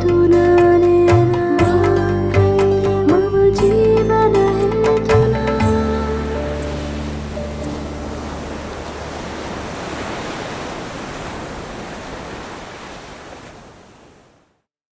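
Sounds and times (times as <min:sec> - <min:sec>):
sea surf washing onto beach: 0:05.9 - 0:14.6.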